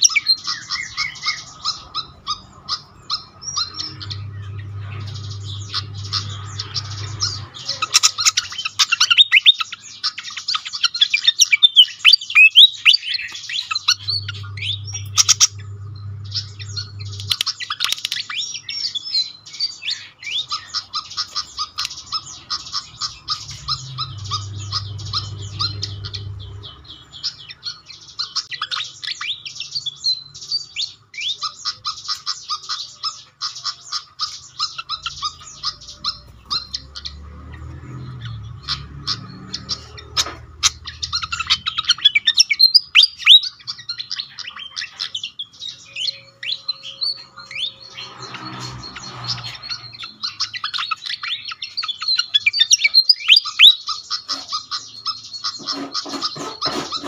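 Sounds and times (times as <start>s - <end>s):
bird chirping and twittering: 0.0s - 57.0s
low hum: 3.3s - 7.8s, 13.6s - 17.8s, 22.4s - 27.4s.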